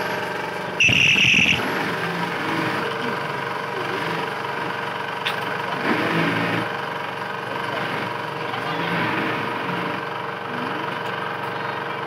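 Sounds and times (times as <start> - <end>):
loud high-pitched whine: 0.0 - 4.4
workshop machinery hum: 0.0 - 12.0
sewing machine motor running: 0.8 - 2.7.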